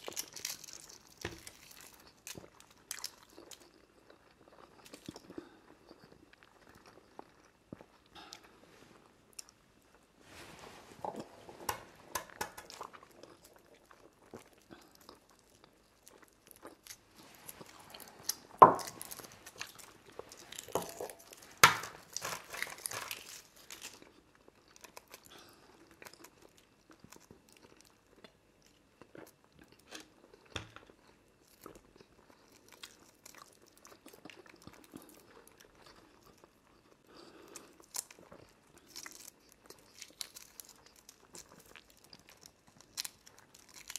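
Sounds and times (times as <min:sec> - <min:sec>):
chewing: 0:00.0 - 0:09.6, 0:11.0 - 0:43.9
eggshells crackling: 0:16.6 - 0:24.4.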